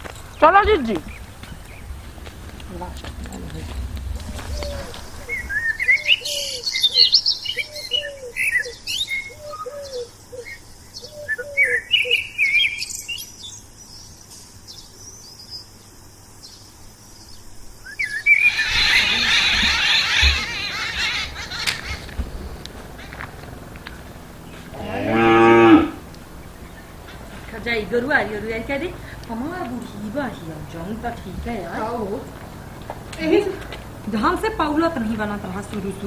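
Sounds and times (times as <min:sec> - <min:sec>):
chorus of birds chattering: 0:00.0 - 0:15.7, 0:17.2 - 0:36.0
birds chirping: 0:00.0 - 0:36.0
bird lower call: 0:02.6 - 0:13.0, 0:17.8 - 0:23.2.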